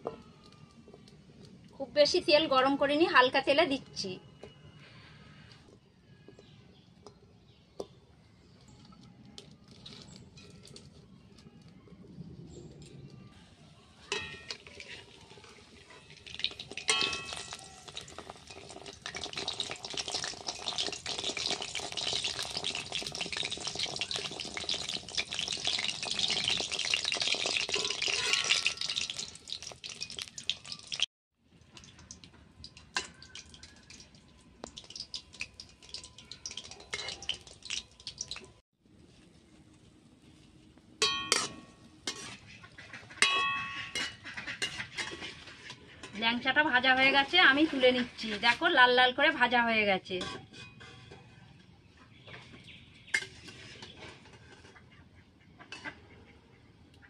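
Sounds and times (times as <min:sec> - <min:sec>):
food deep-frying in oil: 0:13.9 - 0:38.6, 0:42.0 - 0:50.2
metal spoon clinking on pan: 0:14.1 - 0:15.1, 0:16.4 - 0:18.7, 0:27.6 - 0:29.3, 0:35.8 - 0:37.9, 0:41.0 - 0:42.4, 0:43.2 - 0:46.2.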